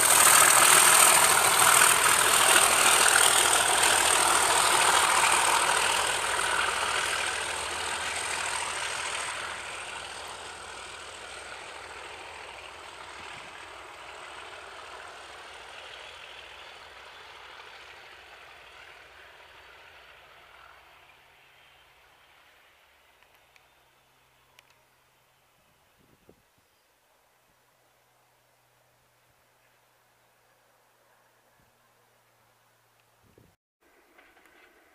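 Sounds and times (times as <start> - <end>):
diesel locomotive engine throbbing: 0.0 - 22.6.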